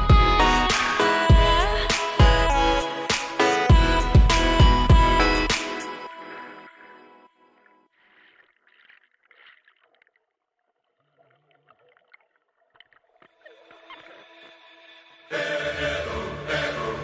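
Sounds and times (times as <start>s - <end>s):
faint water splashing and bubbling: 6.0s - 14.6s.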